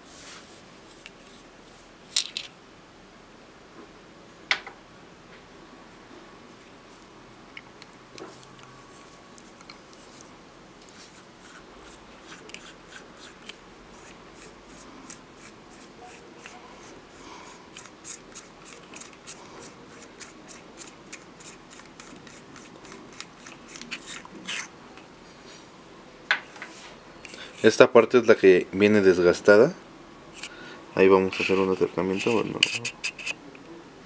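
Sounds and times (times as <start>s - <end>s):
light metal scraping: 31.1s - 33.4s.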